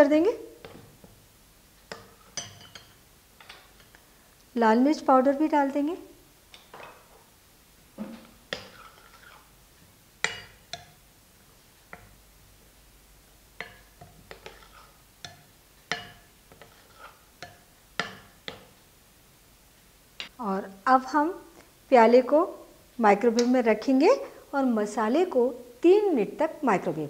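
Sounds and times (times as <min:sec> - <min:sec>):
ladle clinking on glass bowl: 0:02.3 - 0:03.0.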